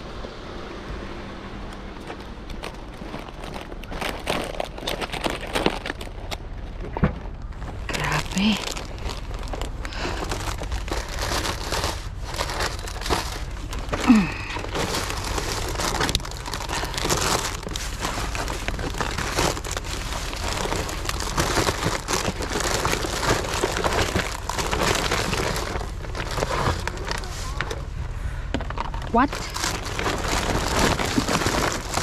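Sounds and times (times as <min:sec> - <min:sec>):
plastic bags crinkling: 0:02.5 - 0:27.8, 0:28.6 - 0:32.0.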